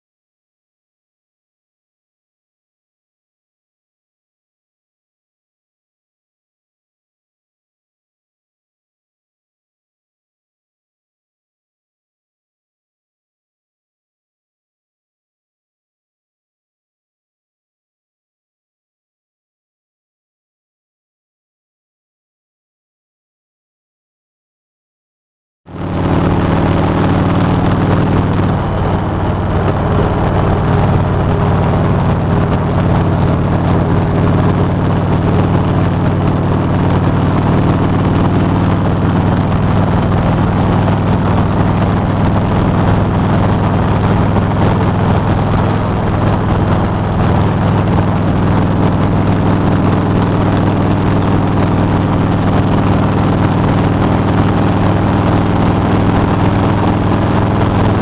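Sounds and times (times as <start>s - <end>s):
motorcycle engine running: 25.7s - 58.0s
wind noise: 25.7s - 58.0s.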